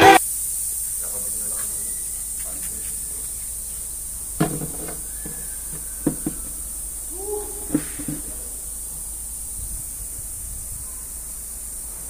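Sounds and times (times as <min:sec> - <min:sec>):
steady high hiss: 0:00.0 - 0:12.0
wooden door knocks and clunks: 0:04.4 - 0:06.6
door creaking: 0:04.4 - 0:08.6.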